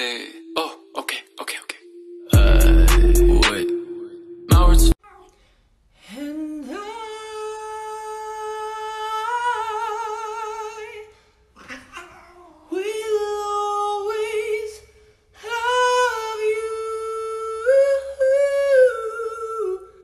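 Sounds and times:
man singing with vibrato: 0.0 - 5.0, 6.1 - 11.2, 12.7 - 20.0.

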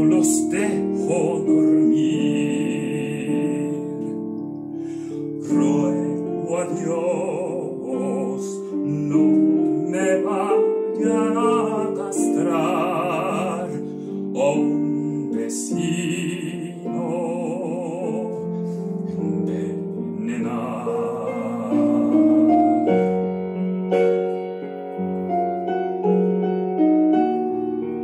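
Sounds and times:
operatic tenor singing: 0.0 - 4.1, 5.3 - 23.2
piano accompaniment: 0.0 - 28.0.

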